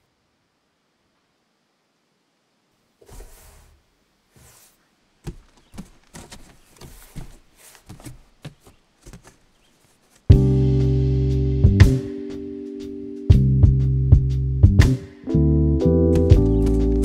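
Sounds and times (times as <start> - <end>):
cardboard and plastic rustling: 3.0 - 10.4
loud guitar music: 10.3 - 17.0.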